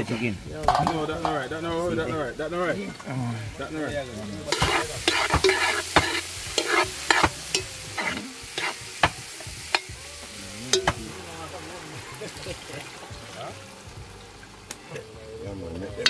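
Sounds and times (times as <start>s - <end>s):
food sizzling in a pot: 0.0s - 16.0s
spoon clanking against pot: 0.7s - 1.4s, 4.5s - 10.0s, 10.7s - 11.0s.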